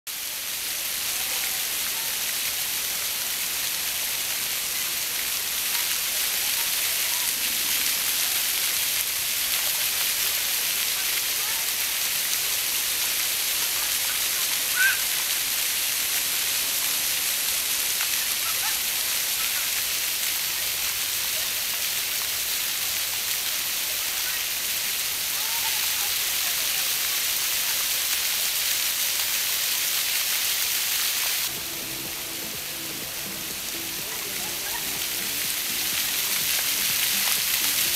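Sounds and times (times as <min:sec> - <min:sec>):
fountain water splashing: 0:00.1 - 0:37.9
brief high cry: 0:14.7 - 0:15.1.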